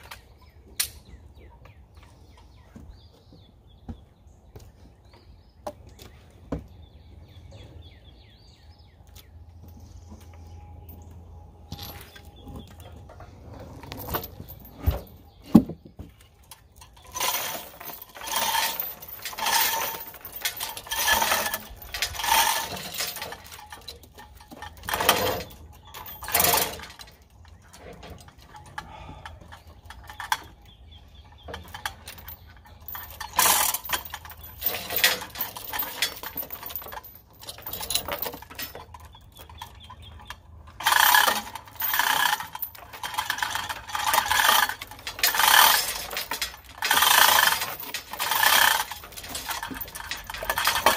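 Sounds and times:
chain rattling: 0:07.4 - 0:50.9
chain hoist ratcheting: 0:16.2 - 0:50.9.

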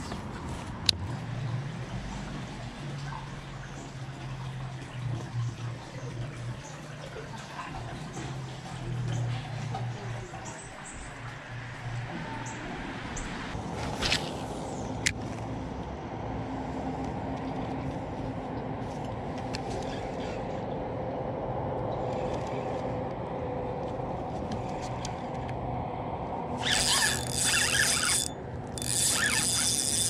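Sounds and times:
electric motor humming: 0:26.6 - 0:30.0.

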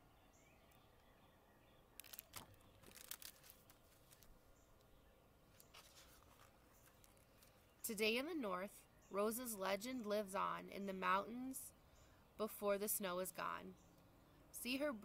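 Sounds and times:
paper pages rustling: 0:02.0 - 0:04.4, 0:05.5 - 0:07.6.

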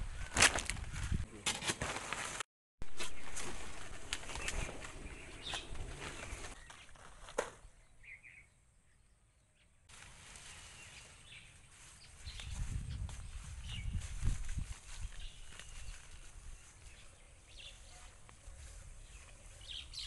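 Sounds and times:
leafy branches rustling: 0:00.0 - 0:07.6, 0:09.9 - 0:20.0
footsteps swishing through grass: 0:09.9 - 0:20.0.

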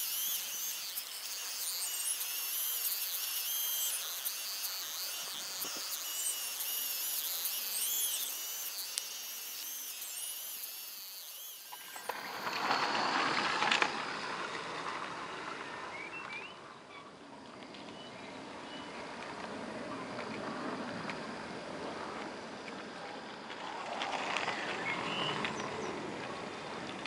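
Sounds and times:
model excavator motors whining: 0:00.0 - 0:14.0.

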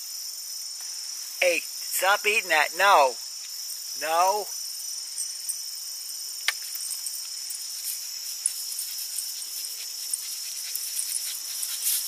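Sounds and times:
crickets chirring: 0:00.0 - 0:12.0
dog rustling in grass: 0:06.8 - 0:12.0
dog sniffing: 0:08.6 - 0:12.0.

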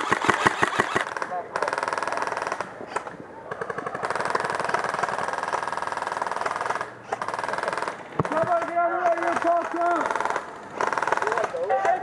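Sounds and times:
airsoft guns firing full auto: 0:00.0 - 0:02.7, 0:03.5 - 0:12.0.

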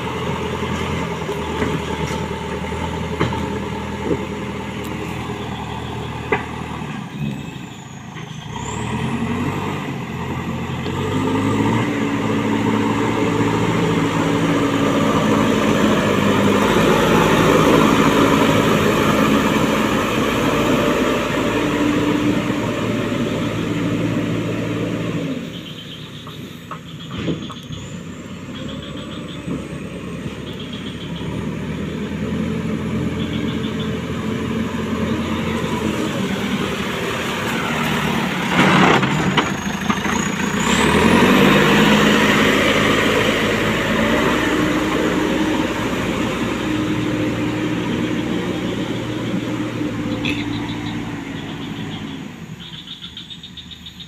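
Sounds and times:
diesel engine under load: 0:00.0 - 0:54.0.

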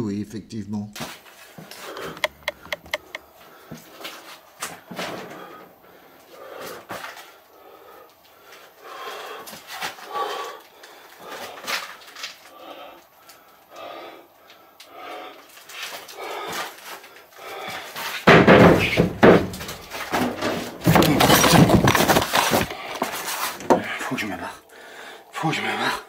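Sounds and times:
heavy rapid breathing: 0:01.5 - 0:04.0, 0:12.4 - 0:18.3, 0:19.0 - 0:26.0.

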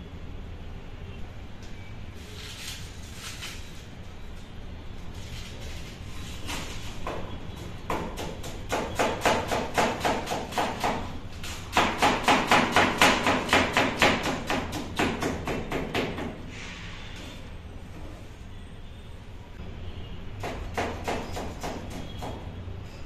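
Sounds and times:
knife chopping cabbage on board: 0:07.0 - 0:16.3.

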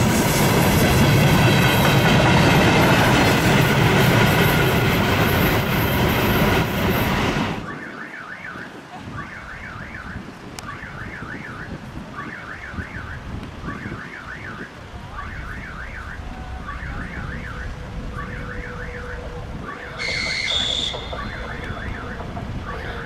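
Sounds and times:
electronic warning signal warbling: 0:15.2 - 0:23.0.

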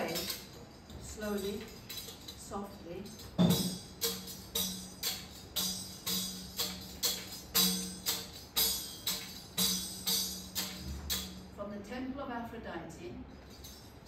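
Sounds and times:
frame drum struck by hand: 0:03.4 - 0:04.2.

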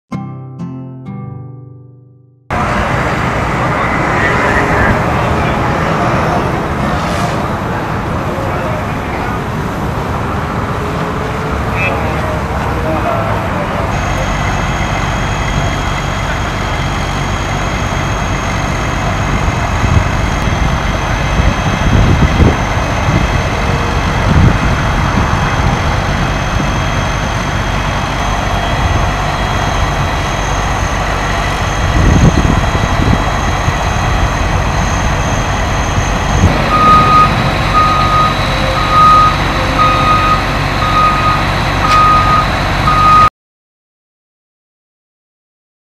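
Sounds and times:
high steady whine: 0:13.5 - 0:43.3
reversing alarm beeping: 0:13.9 - 0:24.6, 0:25.3 - 0:43.3.

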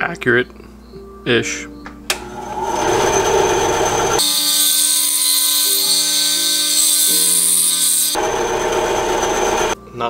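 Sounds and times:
band saw cutting wood: 0:02.1 - 0:09.8.

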